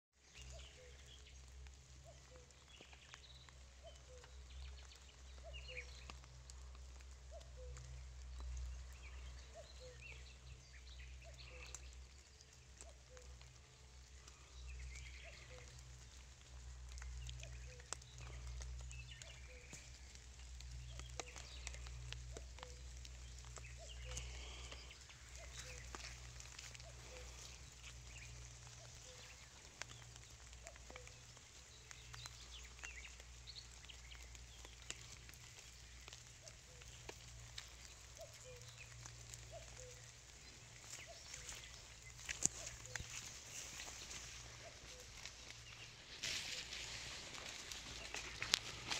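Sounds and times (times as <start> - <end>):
rustling through vegetation: 0.2 - 48.9
steady low rumble: 13.4 - 48.9
bird chirps: 16.9 - 48.9.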